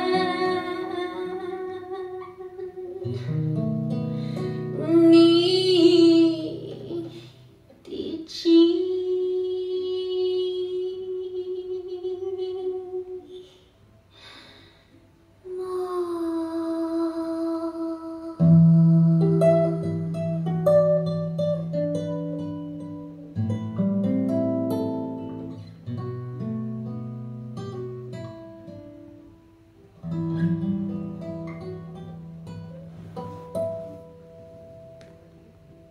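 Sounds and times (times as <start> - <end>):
woman singing ballad over loudspeakers: 0.0 - 3.1, 4.8 - 7.2, 7.9 - 13.3, 15.5 - 20.0
acoustic guitar music: 0.0 - 7.7, 18.3 - 35.9.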